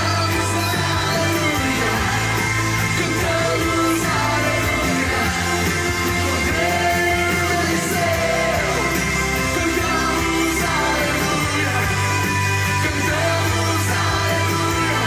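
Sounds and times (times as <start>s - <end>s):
band accompaniment: 0.0s - 15.0s.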